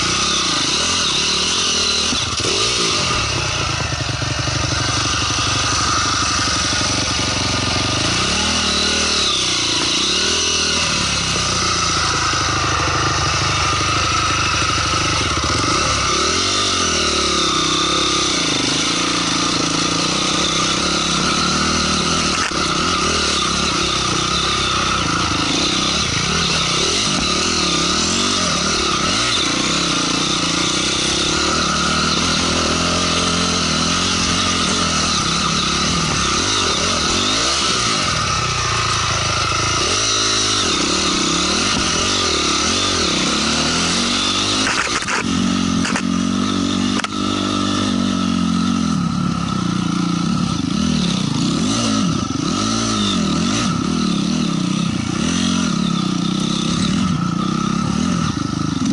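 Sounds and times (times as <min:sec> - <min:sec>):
motorcycle engine revving: 0:00.0 - 0:58.9
sharp click: 0:44.6 - 0:46.1, 0:46.9 - 0:47.2.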